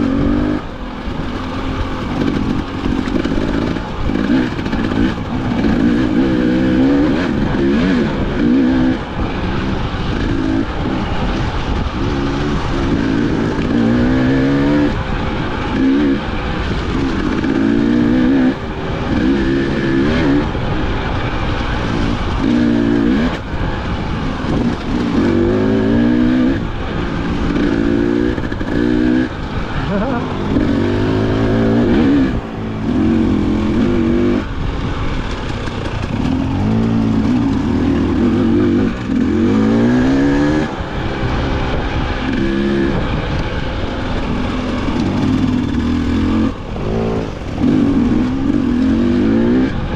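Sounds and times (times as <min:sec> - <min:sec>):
dirt bike engine revving: 0:00.0 - 0:49.9.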